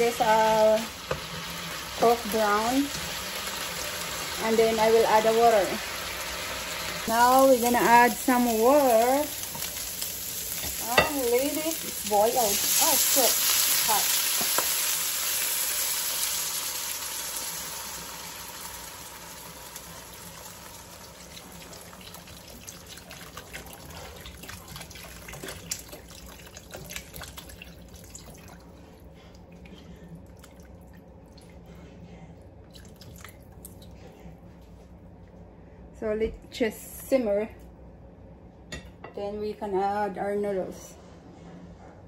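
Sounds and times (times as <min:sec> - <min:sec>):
water sizzling in hot pan: 0:00.0 - 0:23.6.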